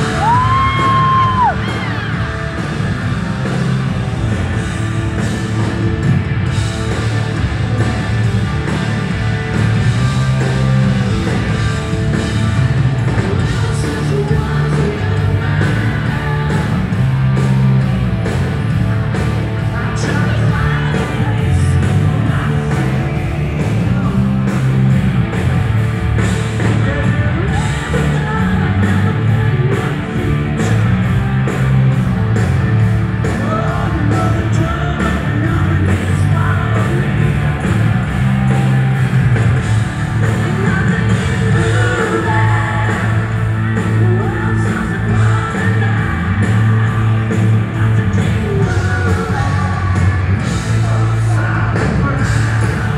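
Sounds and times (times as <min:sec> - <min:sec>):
lead vocal: 0:00.0 - 0:02.5, 0:13.1 - 0:17.4, 0:19.6 - 0:24.8, 0:26.4 - 0:30.9, 0:33.2 - 0:38.0, 0:40.2 - 0:52.9
live hard rock band: 0:00.0 - 0:52.9.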